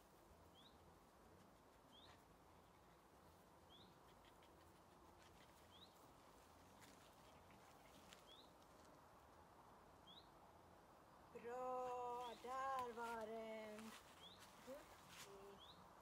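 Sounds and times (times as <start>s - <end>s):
faint ticks and rustles: 0.1s - 9.5s, 11.8s - 15.7s
bird chirping: 0.5s - 0.8s, 1.9s - 2.2s, 3.6s - 4.4s, 5.4s - 6.0s, 7.3s - 8.6s, 10.0s - 10.4s, 14.1s - 16.0s.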